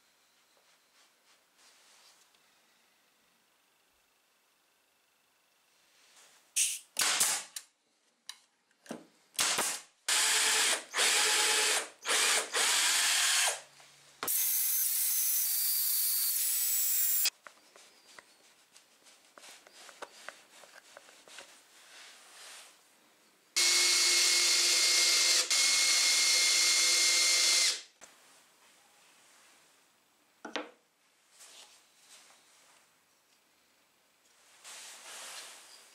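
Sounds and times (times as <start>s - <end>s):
electric drill running: 9.5s - 13.6s, 14.3s - 17.3s, 23.6s - 27.9s.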